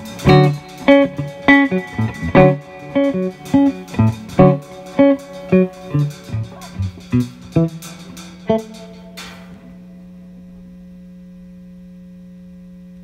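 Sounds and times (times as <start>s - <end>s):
sharp drum hits: 0.0s - 9.9s
plucked jazz guitar: 0.0s - 10.2s
cymbal wash: 0.0s - 11.6s.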